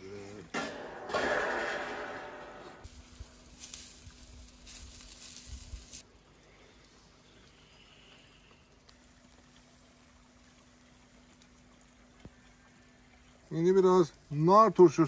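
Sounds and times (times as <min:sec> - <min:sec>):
rustling: 0:00.3 - 0:06.0
faint steady hum: 0:05.4 - 0:13.5.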